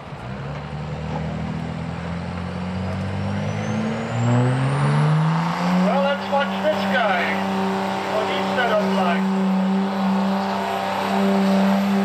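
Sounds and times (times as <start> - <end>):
diesel truck engine running hard: 0.0 - 12.0.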